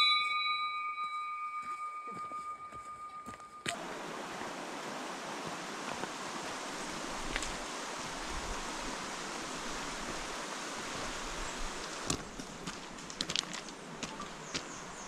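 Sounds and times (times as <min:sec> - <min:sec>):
footsteps on a trail: 0:01.0 - 0:07.7, 0:11.0 - 0:15.0
river rushing over gravel: 0:03.7 - 0:15.0.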